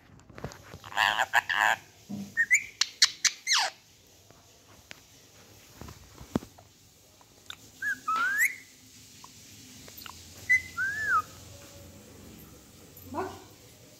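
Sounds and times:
parakeet whistling: 0:02.4 - 0:03.7, 0:07.5 - 0:08.7, 0:10.0 - 0:11.4.

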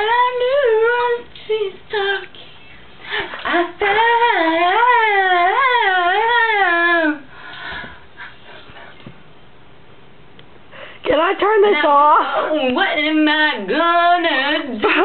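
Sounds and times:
woman singing unaccompanied: 0:00.0 - 0:07.4, 0:11.1 - 0:15.0.

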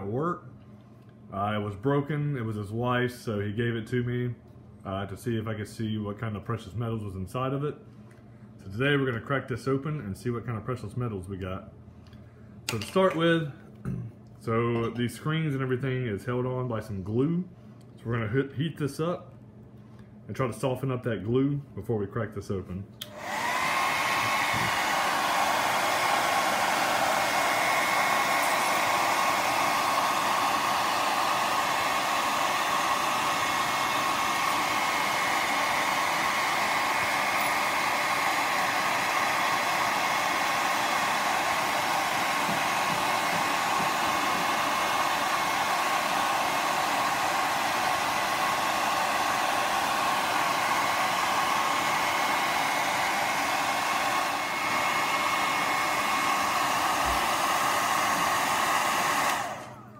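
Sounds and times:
hot-air blower running: 0:23.0 - 0:59.9.

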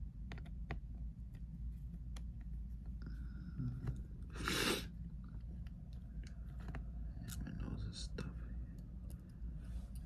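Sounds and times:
low steady hum: 0:00.0 - 0:10.0
person sniffing: 0:04.3 - 0:05.0.

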